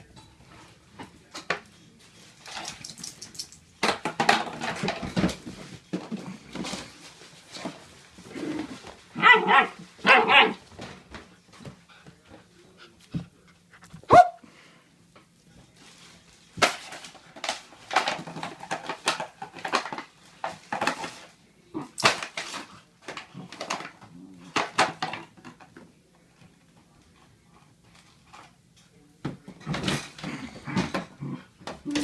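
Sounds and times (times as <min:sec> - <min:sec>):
puppy barking: 0:09.2 - 0:10.6, 0:14.1 - 0:14.4.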